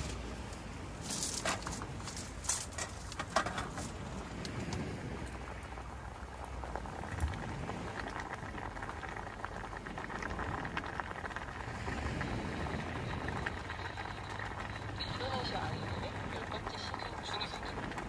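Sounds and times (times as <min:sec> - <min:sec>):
water boiling in a pot: 0:00.0 - 0:18.0.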